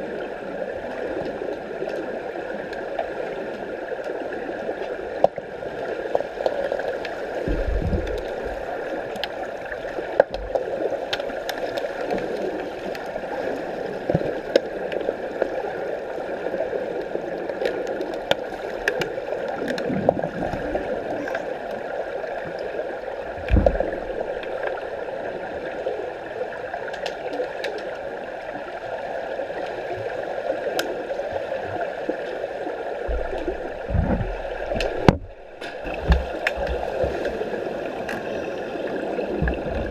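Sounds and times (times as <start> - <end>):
underwater rushing gurgling water: 0.0 - 39.9
low thumps: 33.1 - 37.2.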